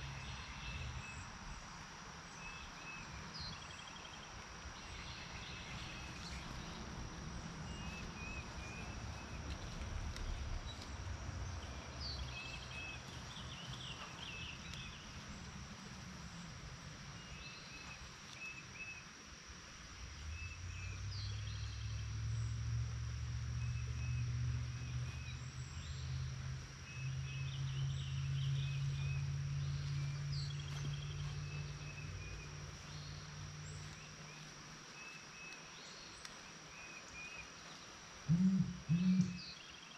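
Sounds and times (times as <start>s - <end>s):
insects buzzing: 0.0s - 39.9s
low steady hum: 38.2s - 39.6s
birds chirping: 38.3s - 39.9s.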